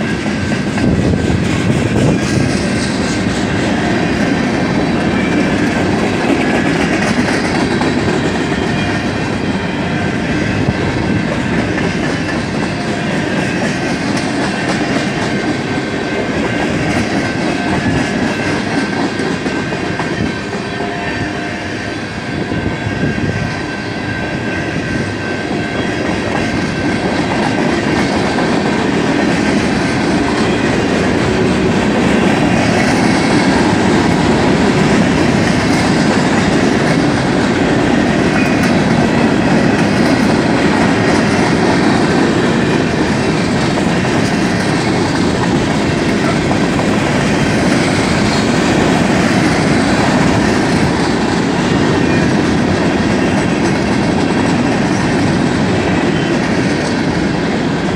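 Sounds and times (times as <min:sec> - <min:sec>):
train wheels rumbling on rails: 0:00.0 - 0:57.9.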